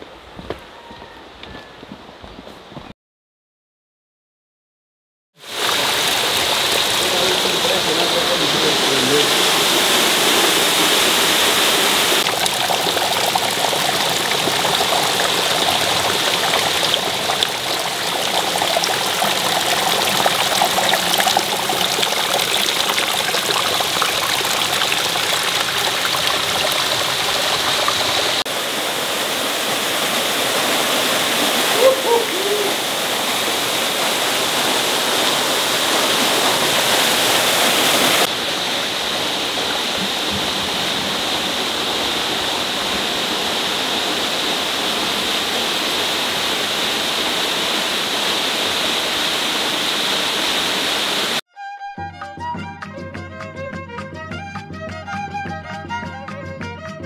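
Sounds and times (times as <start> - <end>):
brief squeak: 0.7 - 1.8
water dripping and trickling: 5.4 - 28.5
waterfall rushing: 5.4 - 51.4.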